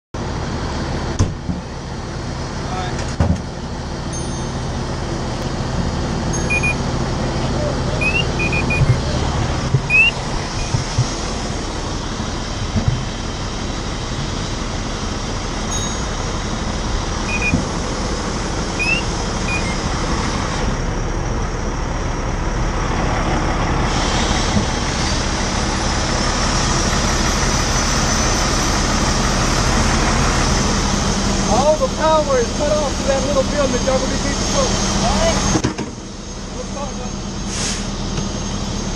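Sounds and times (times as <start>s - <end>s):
fire engine idling: 0.2s - 38.9s.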